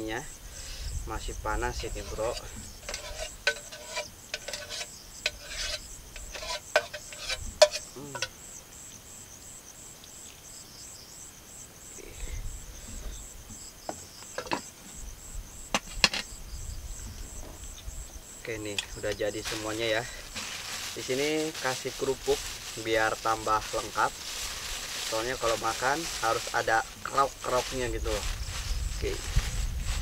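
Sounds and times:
insects chirping: 0:00.0 - 0:30.0
pot knocking on wood: 0:13.9 - 0:14.7.

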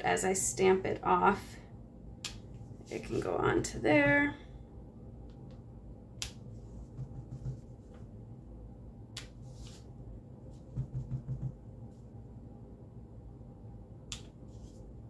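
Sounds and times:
stamp block thumping on paper: 0:10.7 - 0:11.6.

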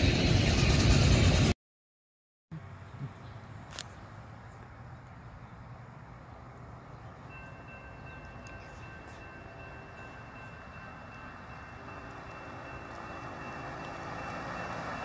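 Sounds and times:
road noise: 0:02.5 - 0:15.0
truck passing: 0:02.6 - 0:15.0
crossing warning bell ringing: 0:07.1 - 0:15.0.

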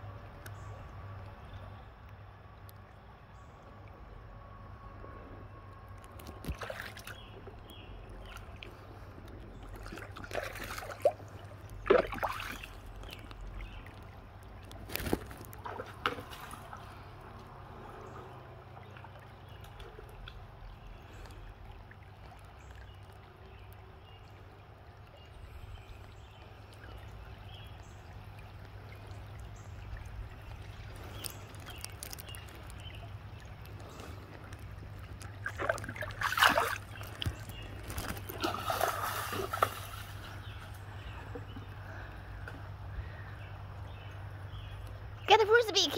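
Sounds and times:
creek water trickling over stones: 0:00.0 - 0:45.9
dog splashing through water: 0:35.4 - 0:40.6.

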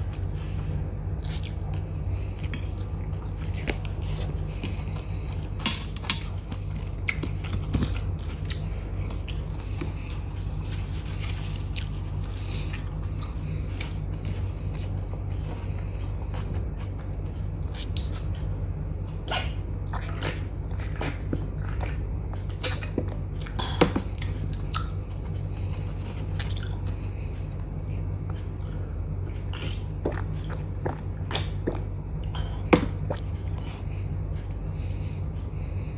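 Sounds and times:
chewing and crunching food: 0:00.0 - 0:35.9
steady low hum: 0:00.0 - 0:35.9.

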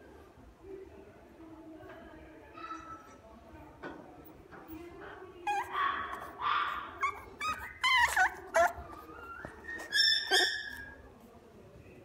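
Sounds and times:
puppy whimpering and yipping: 0:05.5 - 0:06.3, 0:07.0 - 0:11.0.

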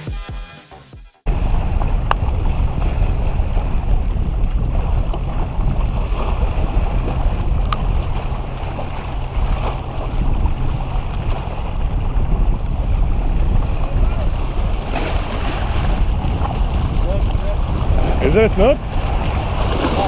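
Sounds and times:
wind buffeting microphone: 0:01.3 - 0:20.0
small waves washing on rocks: 0:13.6 - 0:20.0.

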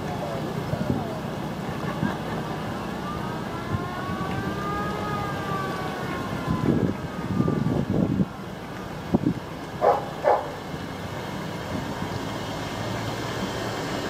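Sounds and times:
vehicle engines driving past: 0:00.0 - 0:14.0
siren wailing: 0:02.8 - 0:08.5.

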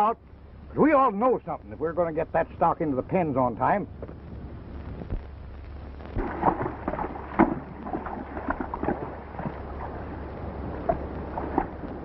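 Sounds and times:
low film soundtrack hum: 0:00.0 - 0:12.0
hooves splashing through creek: 0:06.2 - 0:12.0.

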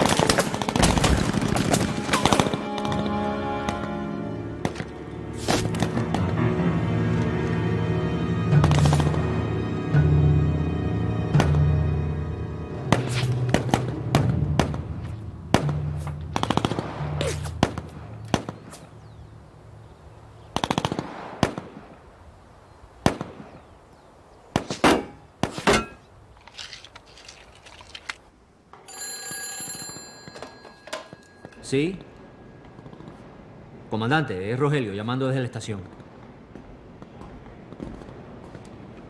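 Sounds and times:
rifle shots and bursts echoing: 0:00.0 - 0:03.0, 0:16.4 - 0:18.7, 0:20.6 - 0:21.9
dramatic film score: 0:00.0 - 0:18.6
telephone ringing: 0:28.8 - 0:32.2.

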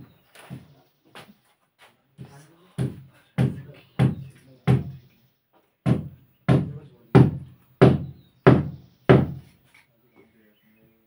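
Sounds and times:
hammer striking a wall: 0:02.8 - 0:05.0, 0:05.8 - 0:09.5.

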